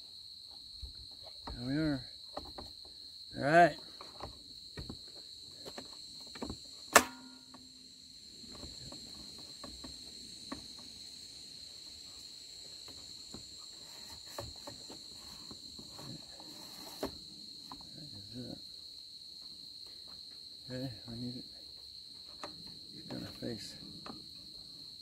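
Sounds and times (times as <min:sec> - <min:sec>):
insect trill: 0:00.0 - 0:25.0
clicks and knocks of metal bracket: 0:06.9 - 0:07.6.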